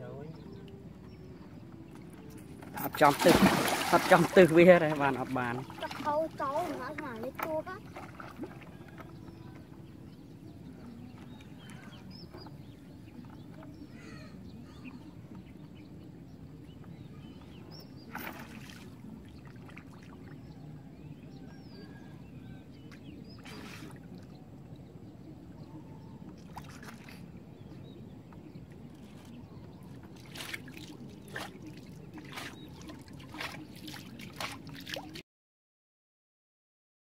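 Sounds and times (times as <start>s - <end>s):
river water splashing: 2.0s - 9.4s, 18.0s - 20.5s, 23.2s - 24.4s, 26.4s - 27.4s, 29.9s - 35.2s.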